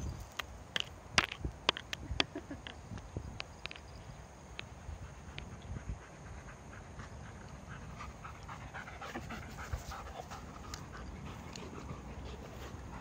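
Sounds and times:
dog panting: 0:05.0 - 0:13.0.

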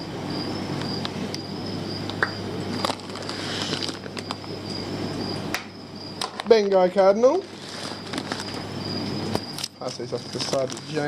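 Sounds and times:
plastic bags rustling and crinkling: 0:02.7 - 0:04.5, 0:06.3 - 0:08.7, 0:09.6 - 0:11.0.

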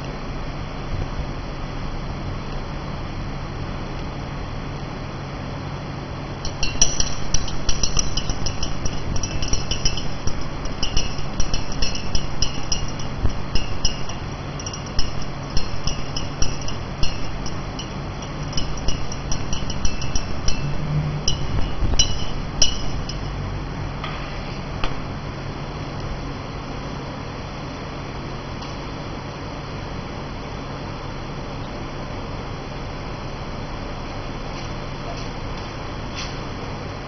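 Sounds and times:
low steady hum: 0:05.2 - 0:30.5
stirring rod clinking on glass: 0:06.4 - 0:23.4.

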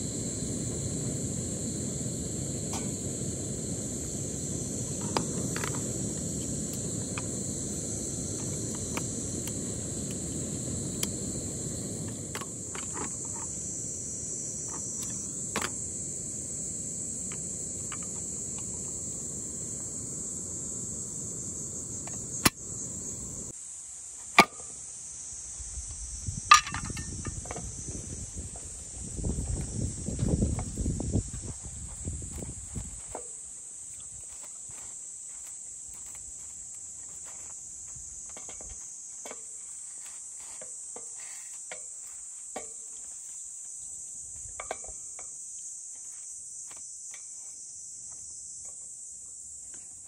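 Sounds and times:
gas stove burner rushing: 0:00.0 - 0:23.5
insects trilling: 0:00.0 - 0:50.0.

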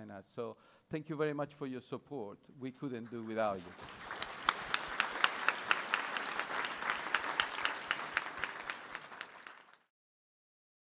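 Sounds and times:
audience applauding: 0:03.1 - 0:09.9
nearby claps: 0:03.2 - 0:09.9.

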